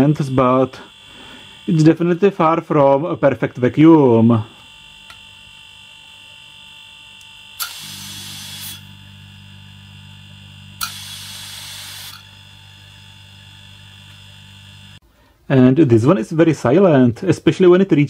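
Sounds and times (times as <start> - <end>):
compressor humming quietly: 0.0 - 18.0
click followed by short hiss: 7.2 - 8.8.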